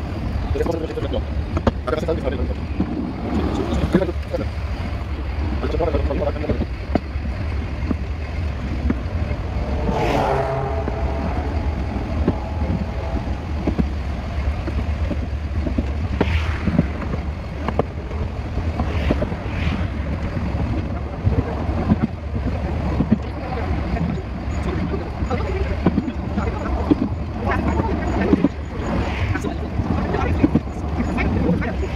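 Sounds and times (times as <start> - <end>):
train rumble: 0.0 - 31.9.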